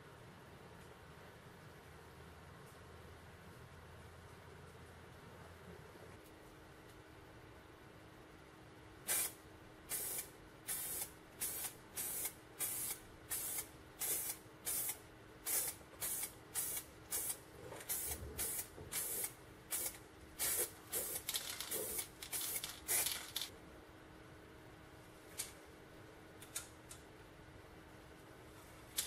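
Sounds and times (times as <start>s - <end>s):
spray paint can hissing bursts: 9.1s - 23.5s.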